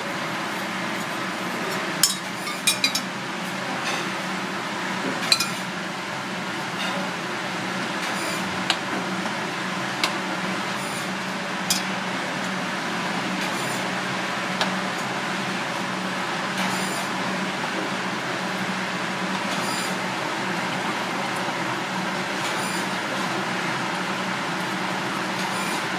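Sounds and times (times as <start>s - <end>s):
ladle clinking against pan: 5.3s - 5.6s.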